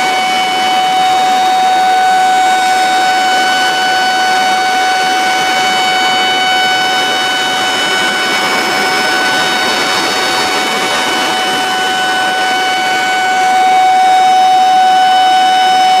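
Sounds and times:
steady warning tone: 0.0 - 16.0
water rushing from dam gate: 0.0 - 16.0.

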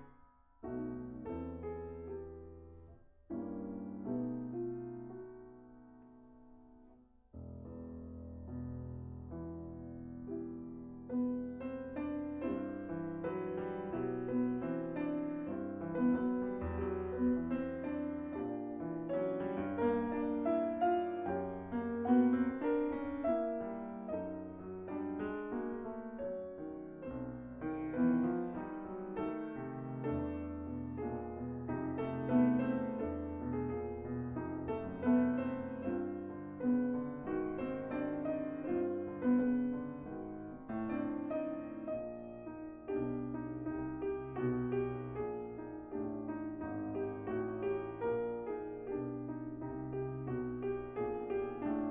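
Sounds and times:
solo piano: 0.0 - 51.9.

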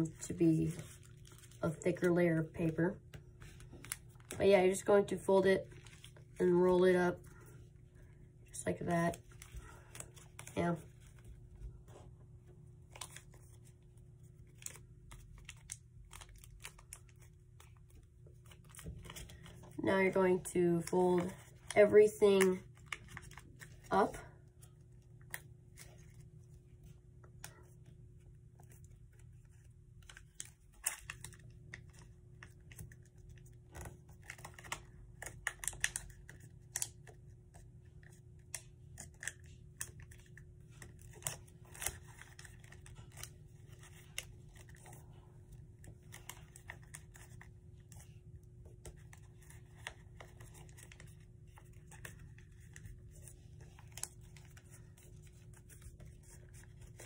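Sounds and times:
paper crinkling and rustling: 0.0 - 7.6, 12.7 - 57.0.

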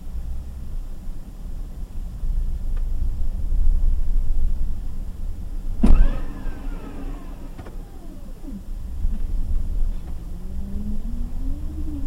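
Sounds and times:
vehicle engine running: 4.8 - 12.0
sharp bang from transmission: 5.8 - 7.9.

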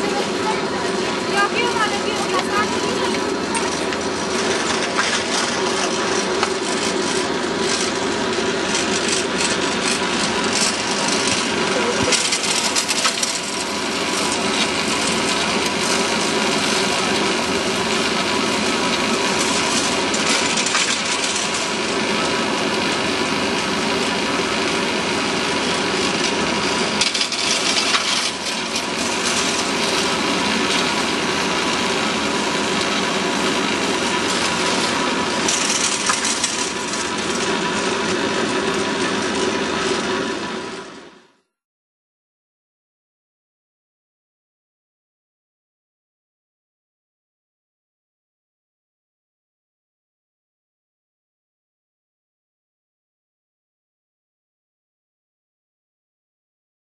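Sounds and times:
chairlift rope rattling: 1.3 - 40.4.

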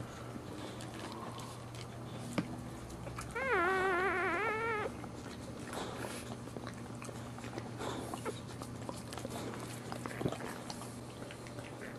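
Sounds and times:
puppy crying: 3.2 - 5.3.

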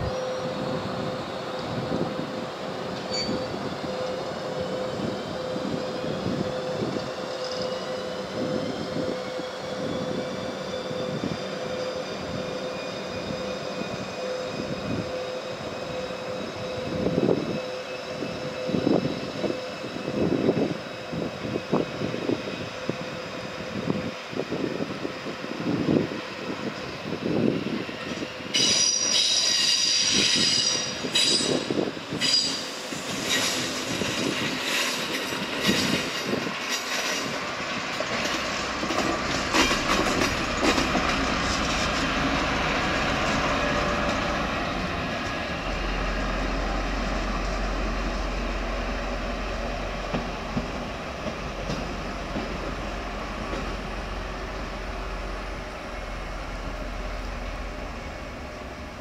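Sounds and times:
train wheels squealing: 0.0 - 59.0
wheels clacking over rail joints: 33.3 - 44.3.

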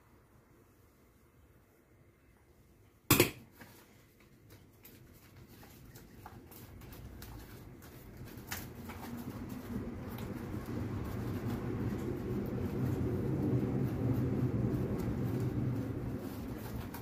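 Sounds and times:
leaf crackling and rustling: 3.7 - 17.0.

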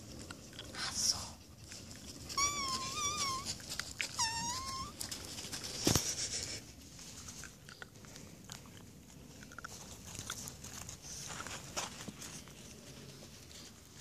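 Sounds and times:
puppy whining: 2.3 - 5.3.

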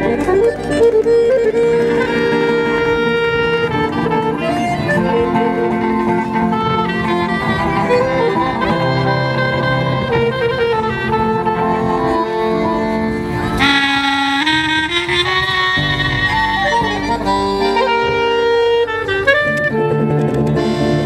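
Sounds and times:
bright high melody line: 0.0 - 19.4
accordion: 0.0 - 21.0
clarinet: 0.0 - 21.0
guitars: 0.0 - 21.0.

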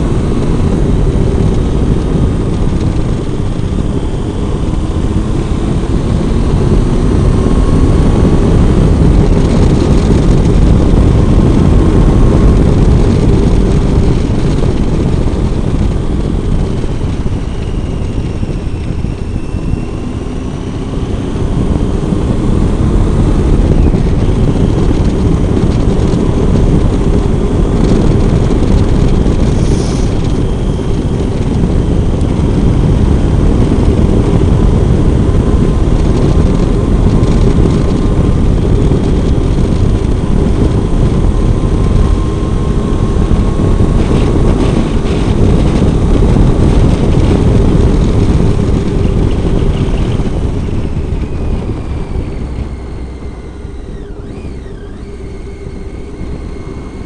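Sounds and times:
motorcycle engine riding: 0.0 - 57.0
wind buffeting microphone: 0.0 - 57.0.

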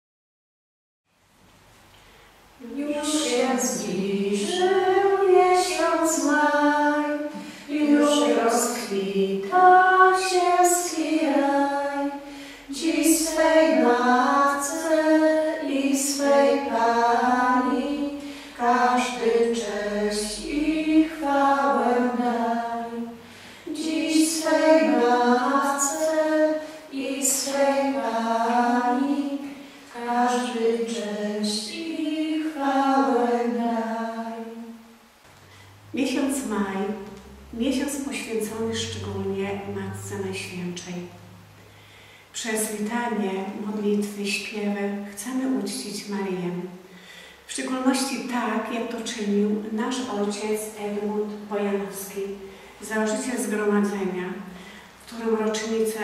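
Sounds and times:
women singing slow melody: 2.6 - 35.1, 35.9 - 44.6.

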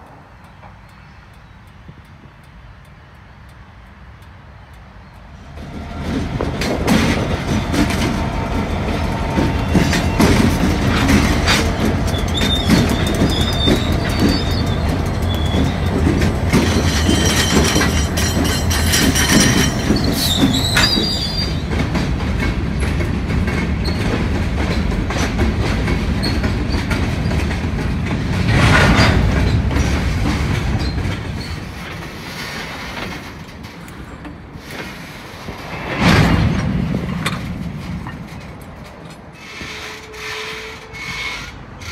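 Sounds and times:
diesel locomotives running: 0.0 - 41.9
freight cars rumbling: 0.0 - 41.9
wheels clicking over rail joints: 0.4 - 35.8, 36.4 - 41.9
high wheel squeal: 7.0 - 21.8, 39.4 - 41.9.

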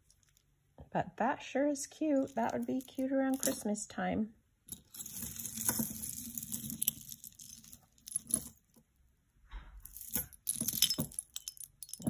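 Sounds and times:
metal chain necklace jingling: 2.2 - 3.6, 4.7 - 8.7, 9.8 - 12.0.

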